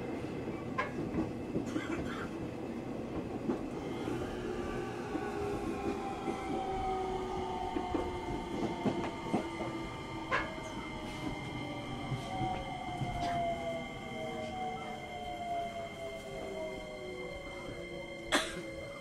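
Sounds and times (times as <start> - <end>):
wheels rumbling on rail: 0.0 - 19.0
electric train inverter whine: 2.0 - 19.0.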